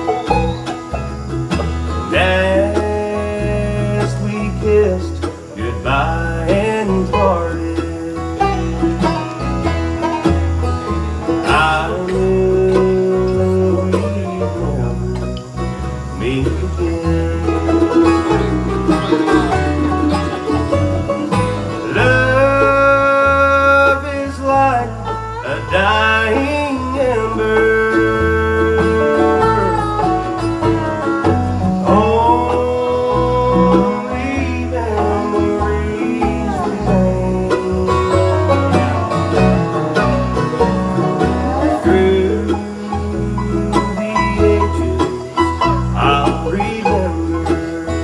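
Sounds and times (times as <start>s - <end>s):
banjo: 0.0s - 48.0s
bass notes: 0.0s - 48.0s
strummed acoustic guitar: 0.0s - 48.0s
lead instrument sliding melody: 7.6s - 23.9s.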